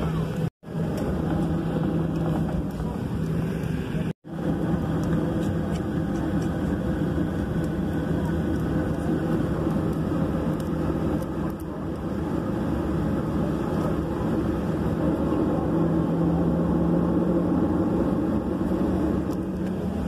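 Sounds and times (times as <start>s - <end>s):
jet engines humming: 0.0s - 20.0s.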